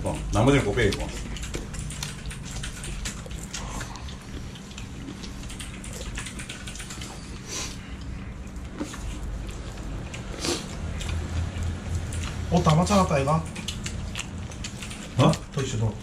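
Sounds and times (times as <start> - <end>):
chopsticks clicking against bowls: 0.0 - 7.2, 11.0 - 16.0
noodles slurped and chewed: 0.0 - 16.0.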